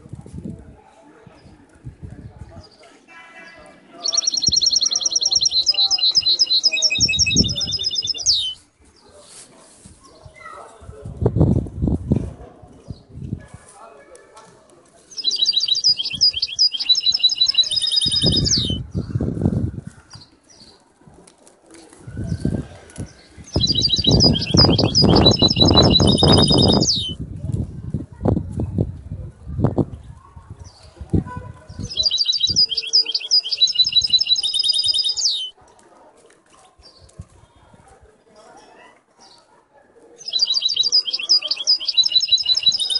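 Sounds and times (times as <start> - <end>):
canary singing: 4.0 - 8.6, 15.1 - 18.9, 23.2 - 27.2, 31.8 - 35.6, 40.2 - 42.9.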